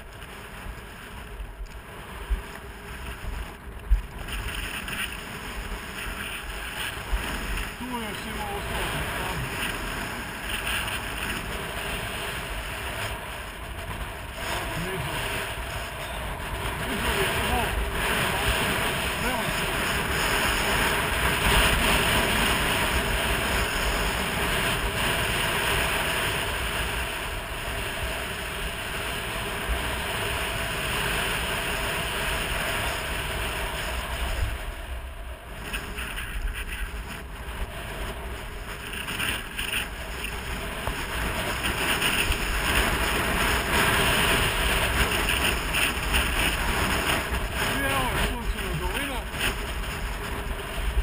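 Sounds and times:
skis scraping over snow: 0.0s - 51.0s
wind buffeting microphone: 0.0s - 51.0s.

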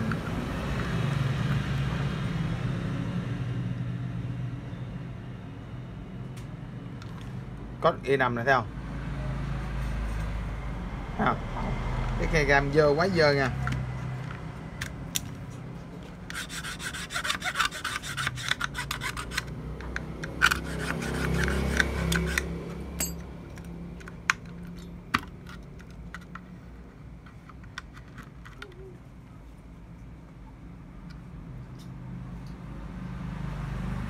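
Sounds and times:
rubbing and scraping strokes: 16.2s - 19.6s, 20.4s - 22.5s.

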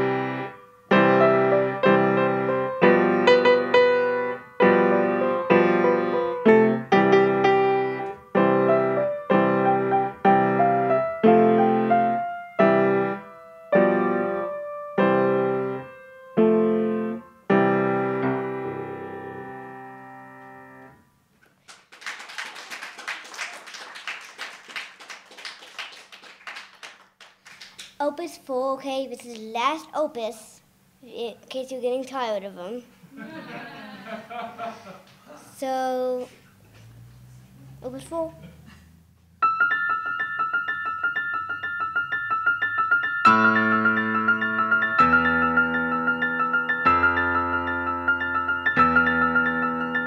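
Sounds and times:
grand piano block chords: 0.0s - 21.1s, 37.7s - 50.0s
audience applause: 21.6s - 27.9s.

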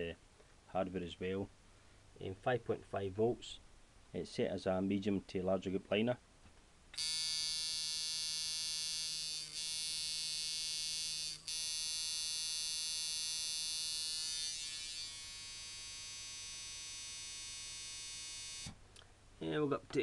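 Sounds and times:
tattoo machine buzzing: 7.0s - 18.7s.

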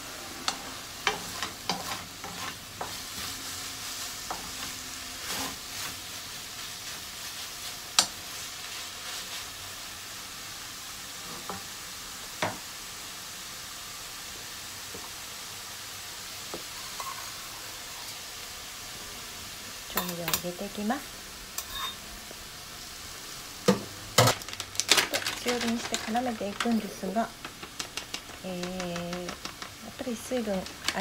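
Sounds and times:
vegetables sizzling in a frying pan: 0.0s - 31.0s
spatula scraping and knocking pan: 0.4s - 3.3s, 21.6s - 22.0s.

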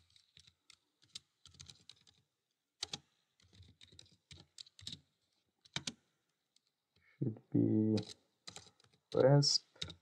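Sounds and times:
faint keyboard typing: 0.0s - 7.1s, 7.7s - 10.0s.

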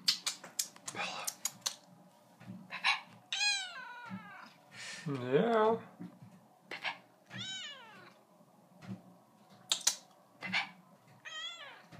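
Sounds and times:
cat meowing: 3.3s - 4.6s, 7.3s - 8.2s, 11.2s - 11.9s
sharp clicks: 9.6s - 10.1s.

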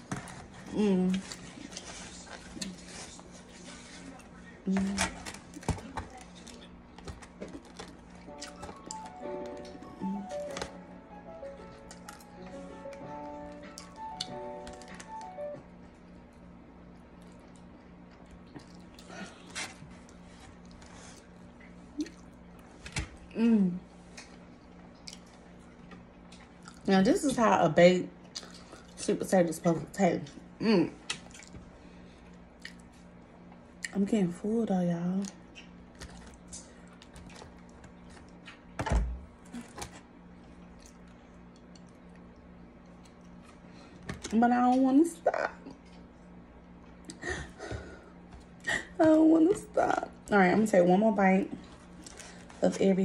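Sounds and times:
faint steady hum: 0.0s - 53.0s
person chewing: 7.4s - 9.0s, 13.5s - 15.0s, 17.2s - 22.7s, 24.2s - 26.9s, 31.0s - 31.6s, 32.2s - 33.0s, 39.5s - 43.6s.

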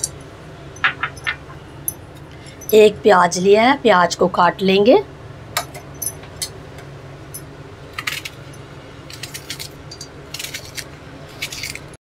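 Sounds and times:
onion skin crackling: 9.1s - 12.0s.

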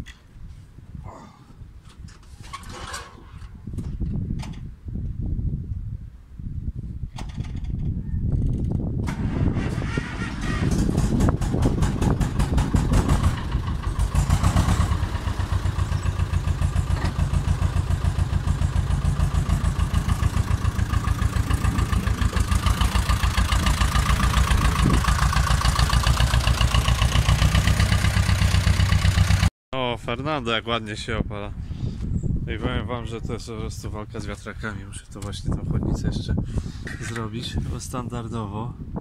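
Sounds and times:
tractor diesel engine running: 9.0s - 29.5s.

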